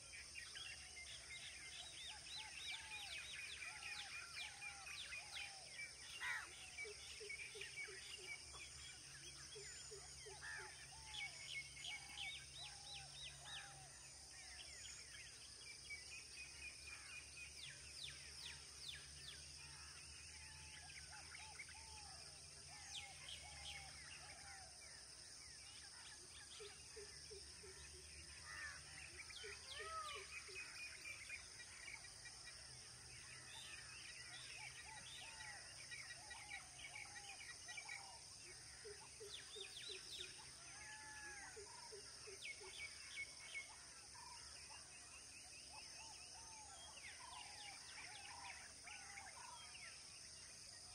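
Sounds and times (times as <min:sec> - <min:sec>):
birds chirping and calling: 0:01.1 - 0:08.8.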